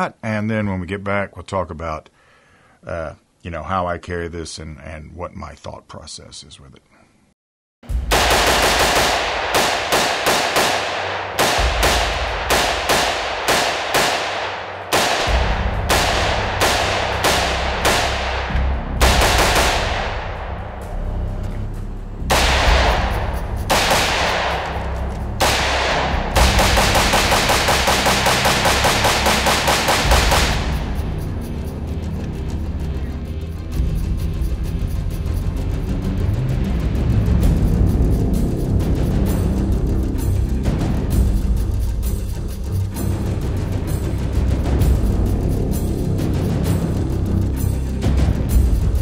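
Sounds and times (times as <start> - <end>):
pistol gunshots: 8.1 - 20.6, 22.3 - 31.0.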